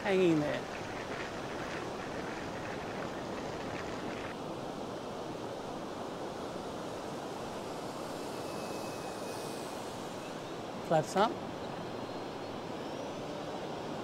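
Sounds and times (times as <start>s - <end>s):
wind noise on microphone: 0.0s - 4.4s.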